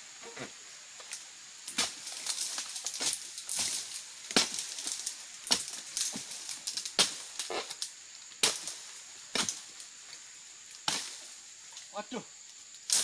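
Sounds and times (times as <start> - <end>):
small cracks: 1.0 - 9.9, 12.7 - 13.0
blade chopping palm stalks: 1.7 - 7.8, 8.4 - 9.8, 10.8 - 11.2.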